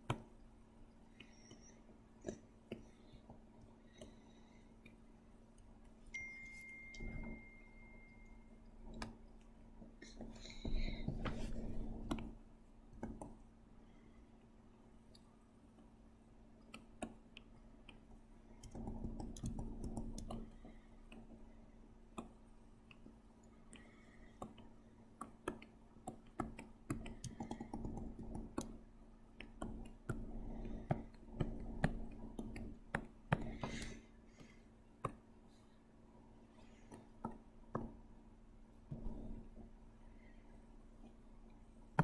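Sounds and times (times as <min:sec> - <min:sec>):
faint low hum: 0:00.0 - 0:42.0
computer input clicks and taps: 0:16.6 - 0:21.3, 0:23.7 - 0:28.8.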